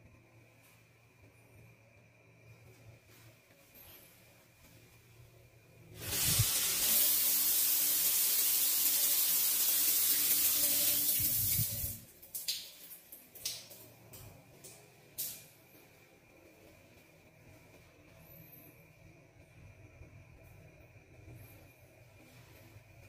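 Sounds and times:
shower spray hissing: 6.0s - 12.5s.

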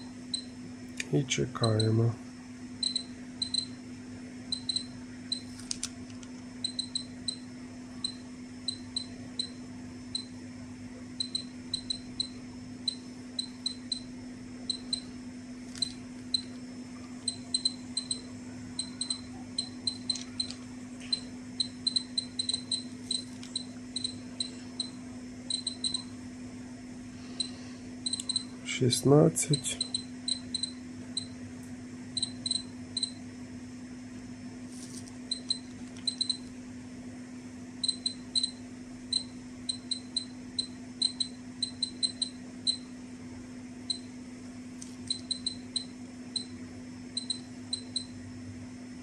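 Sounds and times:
faint steady hum: 0.0s - 49.0s
dosimeter short high beeps: 2.8s - 3.8s, 4.5s - 5.5s, 6.6s - 10.3s, 11.2s - 14.1s, 14.7s - 15.1s, 17.2s - 26.1s, 27.4s - 28.5s, 29.6s - 31.4s, 32.2s - 33.2s, 35.3s - 36.4s, 37.8s - 42.9s, 45.1s - 46.5s, 47.2s - 48.2s.

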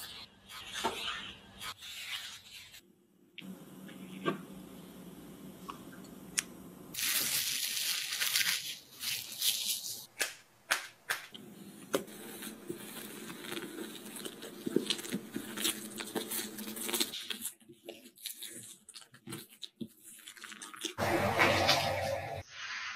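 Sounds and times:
crinkling and tearing: 7.0s - 10.1s, 13.0s - 21.0s.

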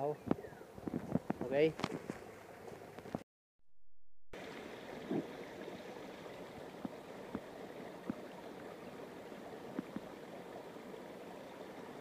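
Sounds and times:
flowing water rushing: 4.4s - 12.0s.

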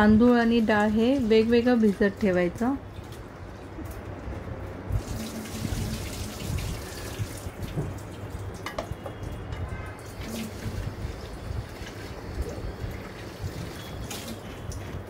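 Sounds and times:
rinse water poured off: 4.9s - 15.0s
tap water running into sink: 5.0s - 14.9s.

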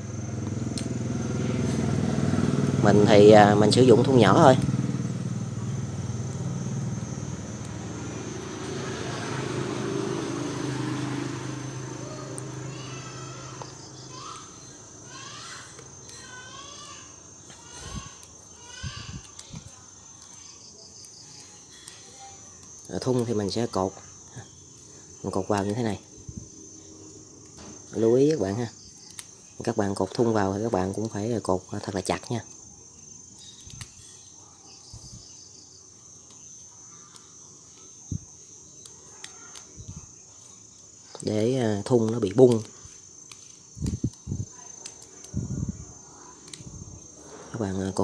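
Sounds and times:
high insect whine: 0.0s - 48.0s
sweeping bird chirps: 3.2s - 19.2s.

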